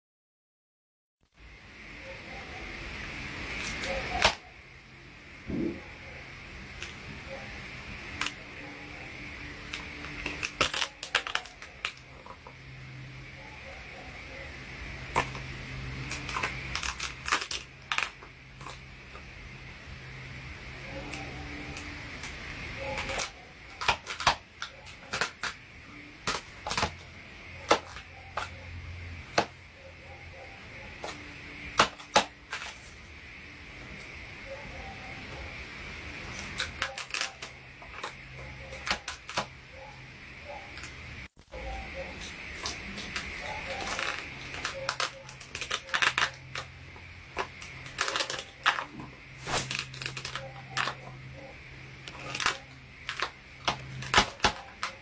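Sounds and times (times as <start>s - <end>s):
paper jaws clacking: 15.1s - 18.8s, 21.0s - 25.6s, 26.2s - 28.7s, 36.2s - 39.6s, 42.0s - 51.4s, 52.0s - 55.0s.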